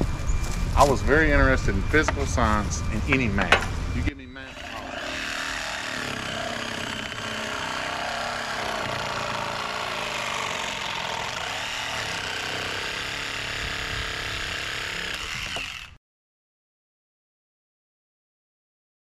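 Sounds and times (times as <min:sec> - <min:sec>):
small engine running: 0:04.5 - 0:16.0.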